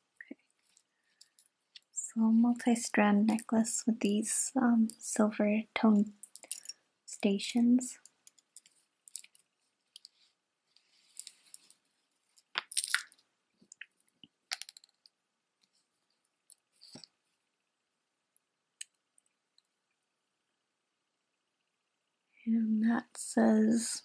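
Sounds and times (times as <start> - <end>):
metal chain clinking: 6.2 - 6.8.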